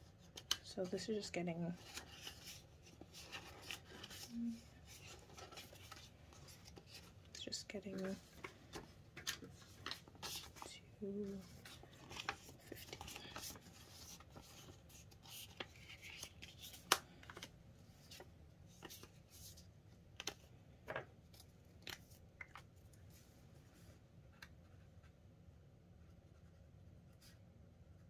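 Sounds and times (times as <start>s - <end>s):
plastic banknotes crinkling: 0.2s - 19.6s.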